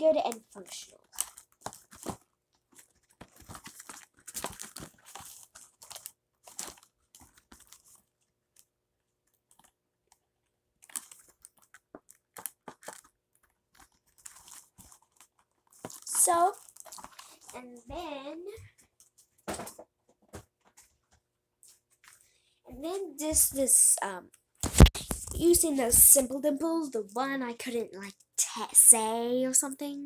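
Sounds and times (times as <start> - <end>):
paper crinkling: 0.2 - 10.2, 10.8 - 17.7, 24.6 - 26.3.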